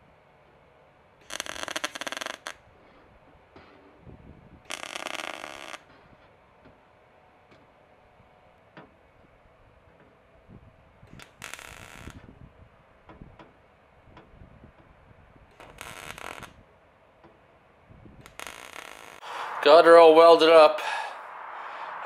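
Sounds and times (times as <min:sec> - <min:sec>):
welding arc crackling: 0:01.2 - 0:02.5, 0:04.7 - 0:05.8, 0:11.2 - 0:12.2, 0:15.6 - 0:16.6, 0:18.2 - 0:19.2.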